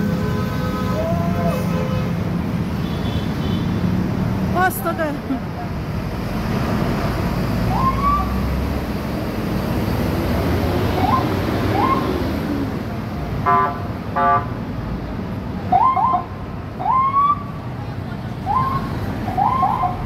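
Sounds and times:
heavy bus traffic rumble: 0.0s - 20.0s
siren whoops: 7.7s - 8.4s, 11.0s - 12.1s, 18.5s - 20.0s
vehicle horn blasts: 13.4s - 14.5s.

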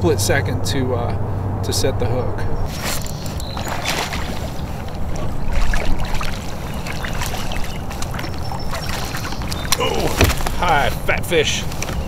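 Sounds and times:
fish splashing at surface: 3.0s - 10.6s
rushing river water: 3.0s - 12.0s.

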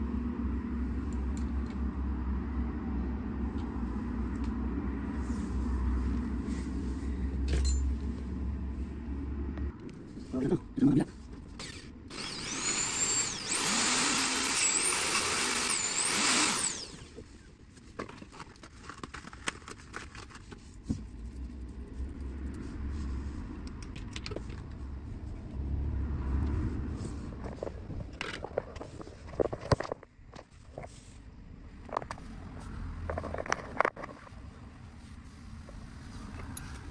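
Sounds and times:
vehicle passing with whine: 0.0s - 10.5s, 21.1s - 28.1s, 32.2s - 33.5s.

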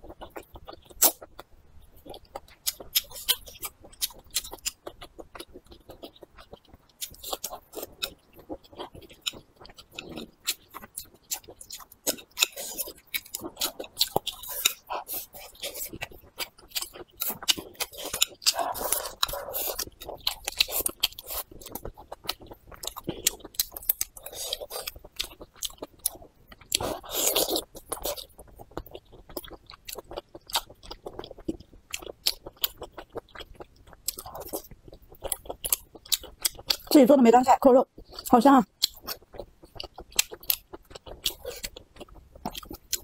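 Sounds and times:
chewing food: 0.0s - 43.0s.

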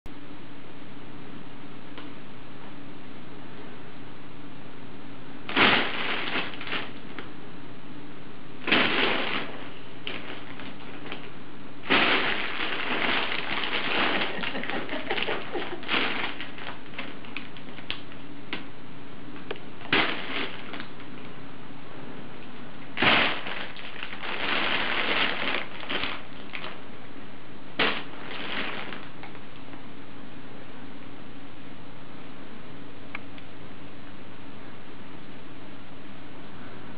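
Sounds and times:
crinkle tube crackling: 5.5s - 7.3s, 8.6s - 18.7s, 19.4s - 21.4s, 22.8s - 26.8s, 27.8s - 29.8s.

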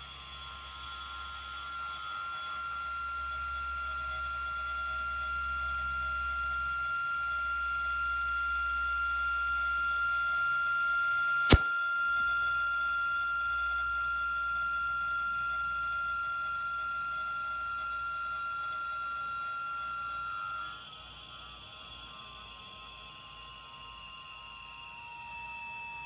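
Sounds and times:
thin steady whistle: 0.0s - 26.0s
sharp click: 11.4s - 11.8s
compressed air hissing: 11.5s - 11.7s.

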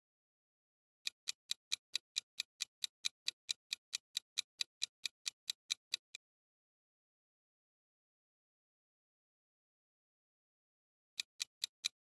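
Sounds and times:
fast clock-like ticking: 1.1s - 6.2s, 11.2s - 12.0s.

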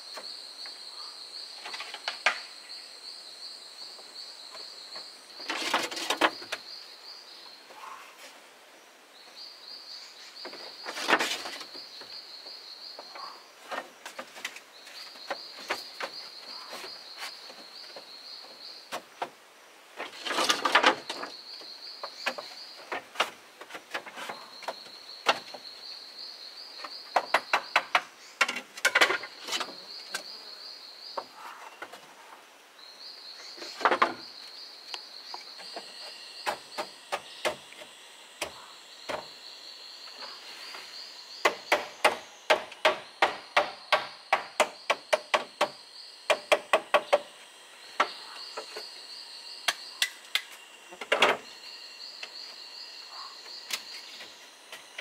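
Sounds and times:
bamboo poles knocking and clattering: 1.6s - 2.5s, 4.9s - 6.6s, 10.4s - 12.1s, 13.0s - 18.1s, 20.0s - 21.4s, 22.0s - 25.6s, 26.8s - 30.3s, 33.6s - 34.4s, 41.4s - 47.3s, 49.7s - 51.4s
insect trilling: 32.8s - 55.0s.

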